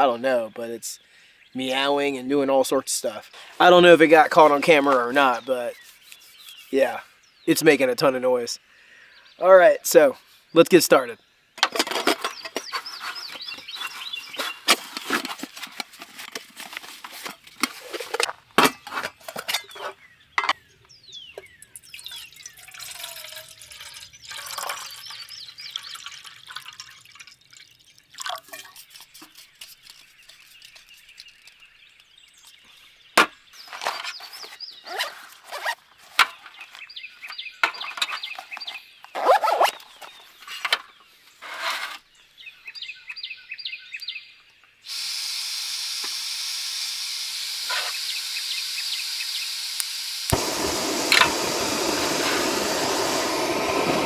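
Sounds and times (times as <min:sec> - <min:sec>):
birds singing: 0:00.0 - 0:44.9, 0:48.0 - 0:49.6
gas hissing from stove: 0:49.7 - 0:54.0.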